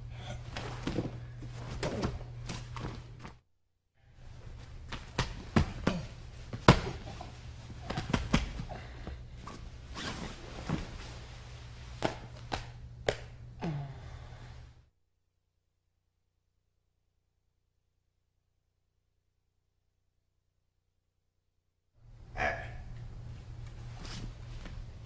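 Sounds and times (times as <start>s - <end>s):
steady low hum: 0.0s - 3.4s, 4.0s - 14.9s, 22.0s - 25.0s
cloth jackets rustling: 9.4s - 12.0s.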